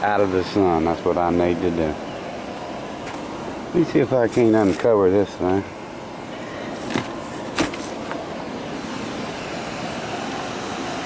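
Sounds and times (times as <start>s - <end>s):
steady rushing noise: 0.0s - 11.0s.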